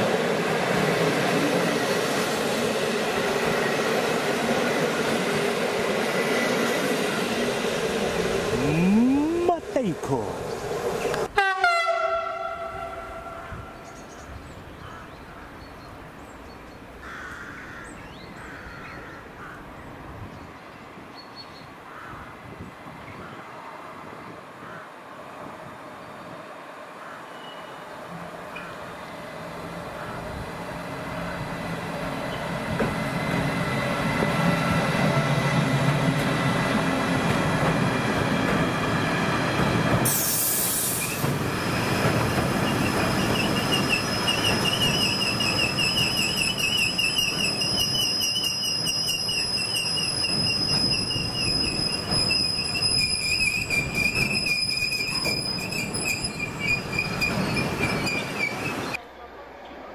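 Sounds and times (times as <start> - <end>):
electric locomotive hum: 23.1 - 59.0
loud hiss: 40.0 - 42.0
wagon wheel squeal: 42.6 - 59.0.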